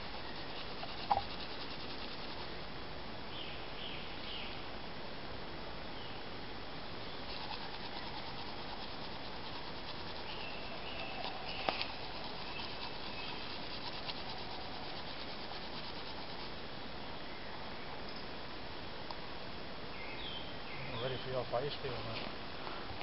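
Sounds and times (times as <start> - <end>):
faint ticking and rubbing: 0.0 - 2.5, 7.3 - 16.6
steady hiss: 0.0 - 23.0
woodland birds whistling: 10.1 - 13.5.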